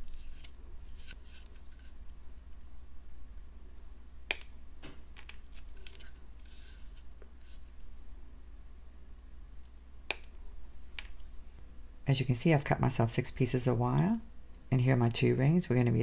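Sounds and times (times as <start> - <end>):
wire clicking and rustling: 0.0 - 8.5.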